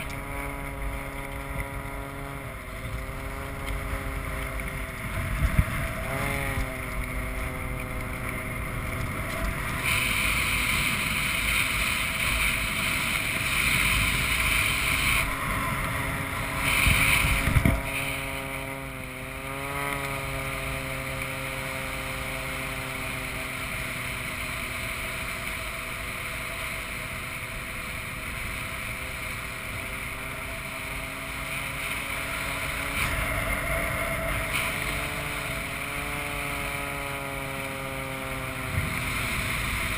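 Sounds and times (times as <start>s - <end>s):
propeller plane engine drone: 0.0s - 39.9s
wind rushing across microphone: 4.0s - 19.5s.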